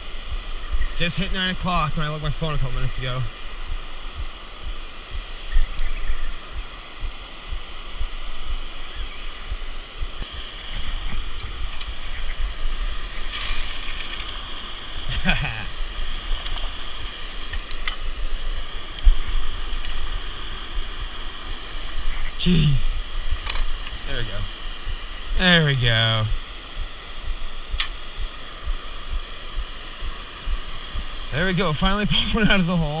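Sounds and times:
small waterfall rushing: 0.0s - 33.0s
rustles and clicks: 13.2s - 14.4s.

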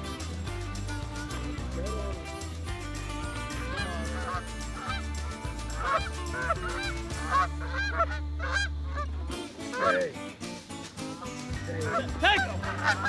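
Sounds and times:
geese honking: 3.4s - 10.1s, 11.8s - 13.0s.

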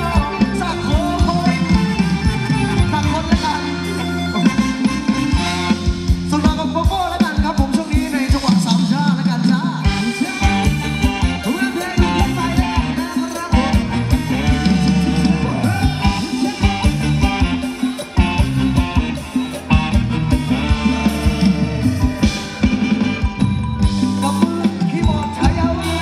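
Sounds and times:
person singing: 0.0s - 4.4s, 24.1s - 26.0s
dance band over loudspeakers: 0.0s - 26.0s.

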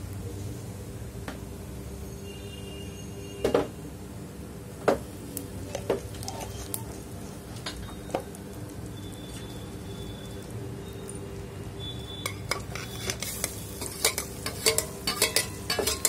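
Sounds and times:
oil sizzling in pot: 4.2s - 16.0s
kitchen utensils clinking: 12.2s - 16.0s.

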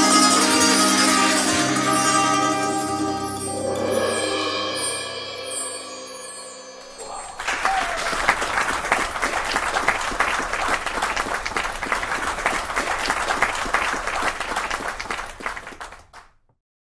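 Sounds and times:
audience applauding: 7.0s - 16.4s.

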